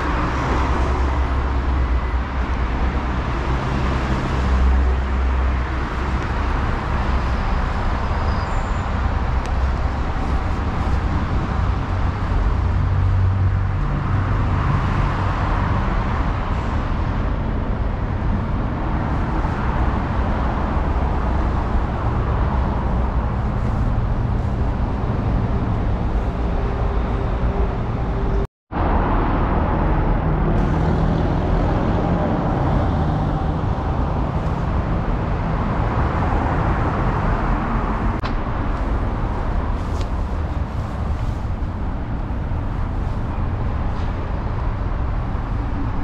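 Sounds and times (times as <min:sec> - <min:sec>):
road traffic: 0:00.0 - 0:46.0.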